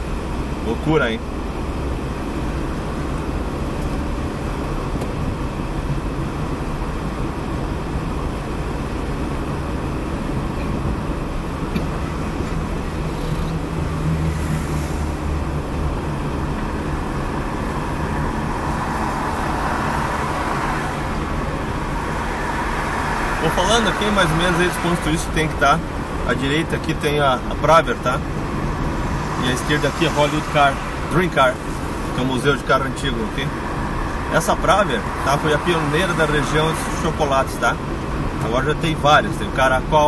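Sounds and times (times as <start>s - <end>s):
car engine drone: 0.0s - 40.0s
tyre road noise: 0.0s - 40.0s.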